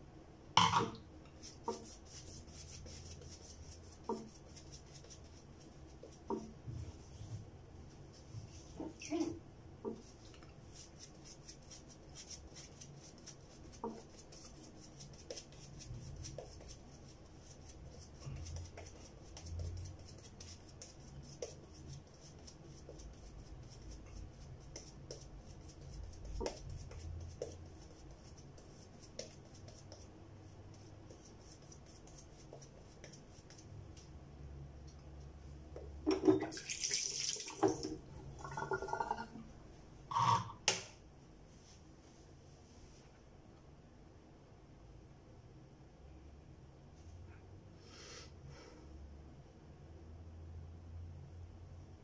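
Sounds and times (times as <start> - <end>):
running water: 36.1 - 39.4.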